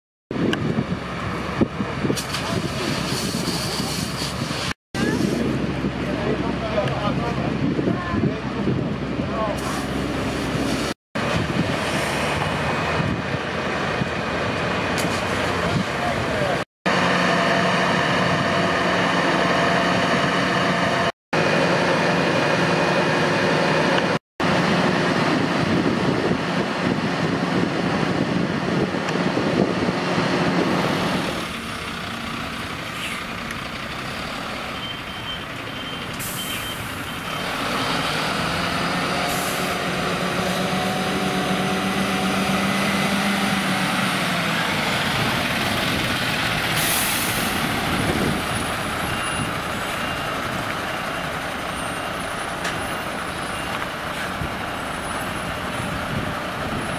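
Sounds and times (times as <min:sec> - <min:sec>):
diesel engine running: 0:05.0 - 0:56.9
reversing beeper: 0:34.7 - 0:37.6, 0:48.5 - 0:53.8
air brakes hissing: 0:35.9 - 0:37.0, 0:46.7 - 0:47.7.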